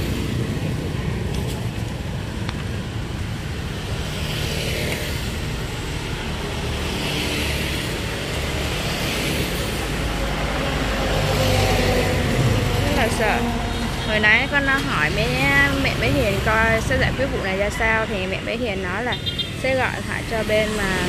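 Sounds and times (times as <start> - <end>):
traffic rumble: 0.0 - 21.0
vehicles passing: 0.0 - 21.0.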